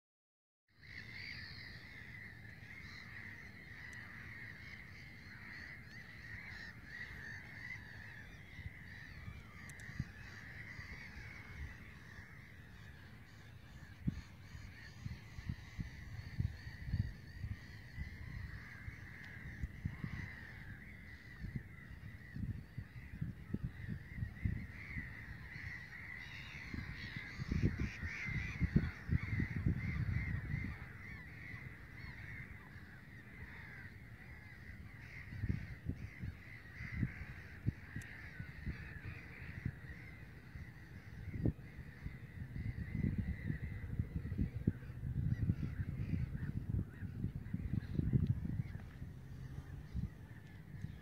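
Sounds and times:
gulls calling: 0.8 - 51.0
low rumble on microphone: 1.4 - 51.0.

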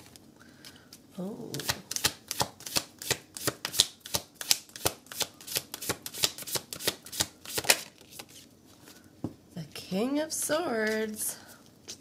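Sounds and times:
cards being shuffled: 1.5 - 8.5.

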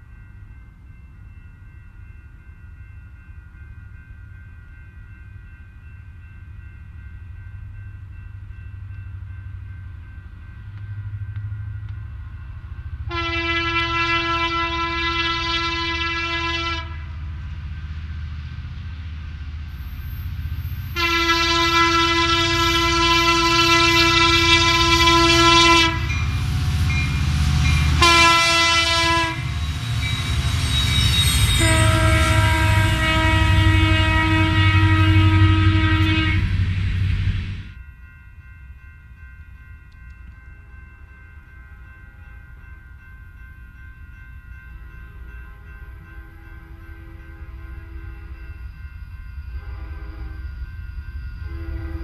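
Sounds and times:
train horn blasts: 13.1 - 17.2, 20.9 - 26.5, 27.6 - 36.8, 45.5 - 48.4, 49.6 - 50.6, 51.4 - 52.0.

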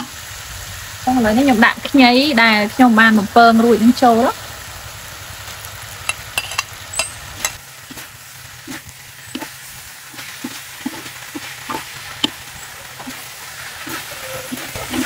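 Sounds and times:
food sizzling in wok: 0.0 - 15.0
metal spatula scraping wok: 6.1 - 15.0.

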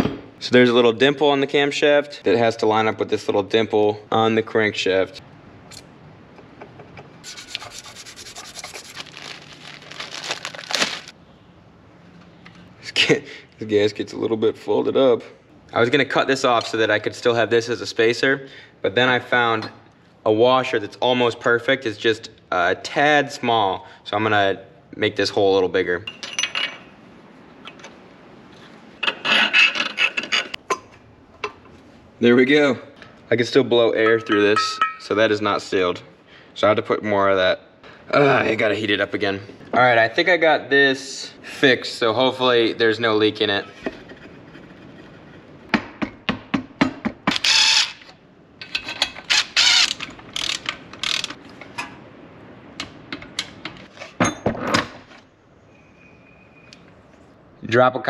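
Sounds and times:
file rasping through metal: 7.2 - 8.9
socket ratchet clicking: 49.3 - 51.4.

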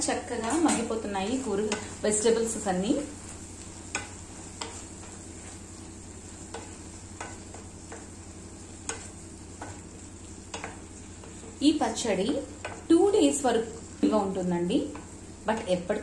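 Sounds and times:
vegetables sizzling: 0.0 - 16.0
spatula clicking against pan: 3.8 - 5.2, 6.4 - 8.2, 8.8 - 9.9, 10.5 - 10.9, 12.6 - 12.9.

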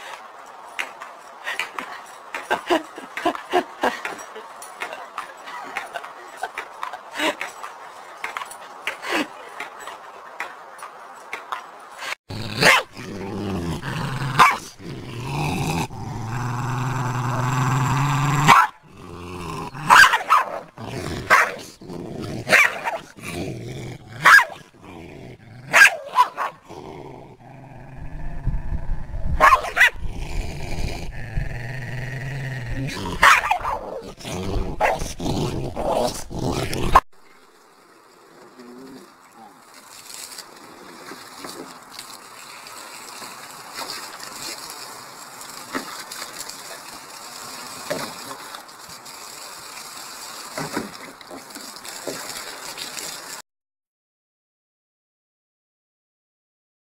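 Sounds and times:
dog growling: 12.3 - 19.9, 20.6 - 37.0
dog barking: 12.6 - 12.9, 14.4 - 14.6, 18.5 - 18.8, 19.9 - 20.6, 21.3 - 21.6, 22.5 - 23.0, 24.2 - 24.6, 25.7 - 26.6, 29.4 - 30.0, 33.2 - 33.9.

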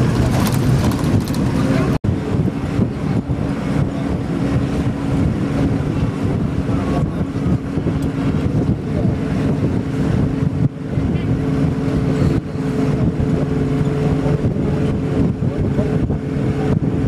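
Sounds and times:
bus engine hum: 0.0 - 17.0
road rumble: 0.0 - 17.0
wind noise on microphone: 0.0 - 17.0.

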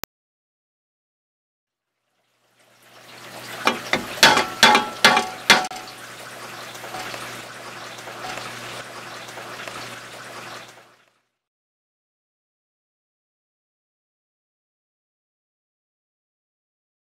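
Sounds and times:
sharp knocks with ringing tone: 3.7 - 5.9.

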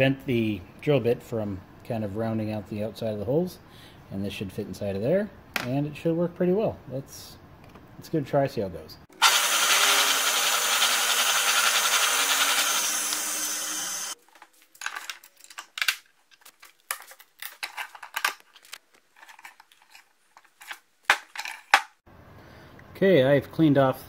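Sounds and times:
drill press running: 9.2 - 14.2
metal parts and tools clicking: 14.8 - 21.9.

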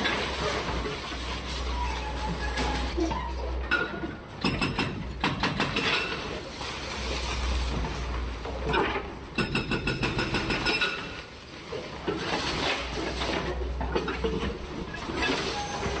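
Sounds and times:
concrete debris crumbling and falling: 0.0 - 3.0.

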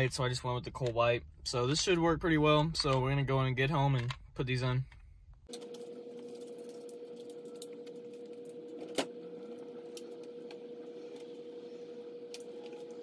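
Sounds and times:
steady hum: 5.5 - 13.0.

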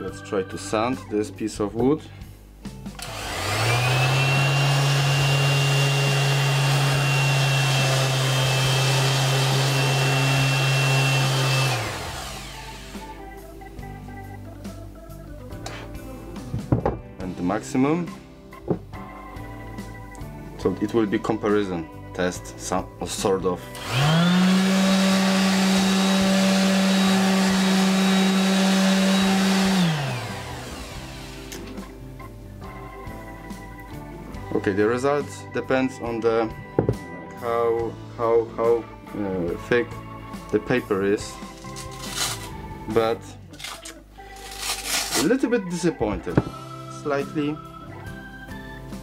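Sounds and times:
orbital sander hum and whine: 3.0 - 13.2, 23.8 - 31.7.

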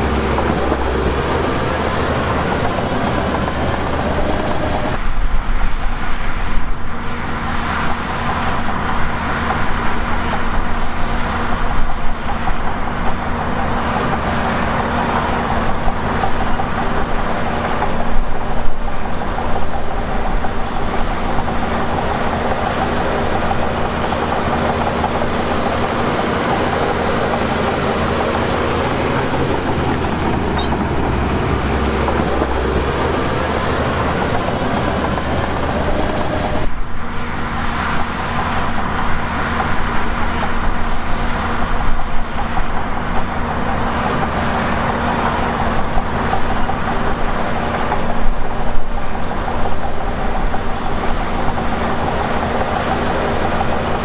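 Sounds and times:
diesel engine rumbling: 0.0 - 54.0.

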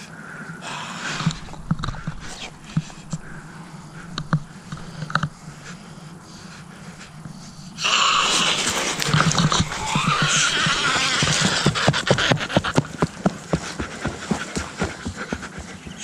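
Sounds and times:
something rushing through brush: 7.8 - 12.1.

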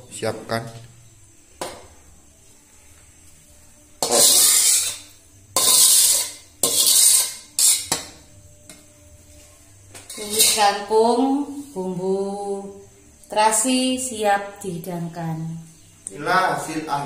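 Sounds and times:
metal spatula scraping a wok: 4.0 - 8.1, 10.1 - 10.9.

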